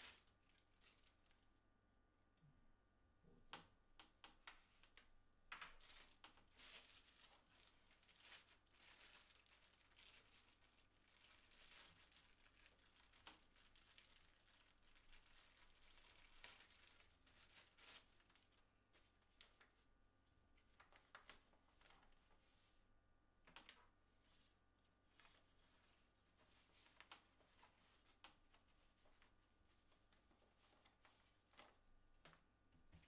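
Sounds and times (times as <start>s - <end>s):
plastic bag crinkling: 0.0s - 1.4s, 5.6s - 19.8s.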